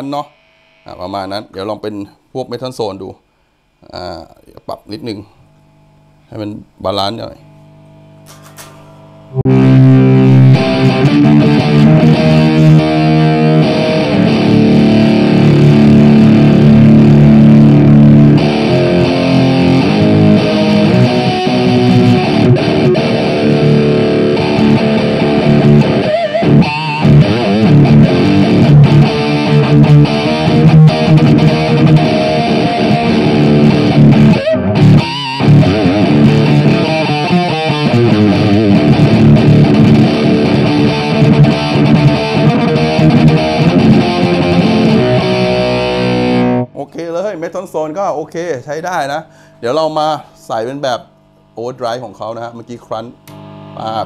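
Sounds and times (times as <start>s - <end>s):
distorted electric guitar: 0.0s - 1.4s, 7.4s - 46.8s.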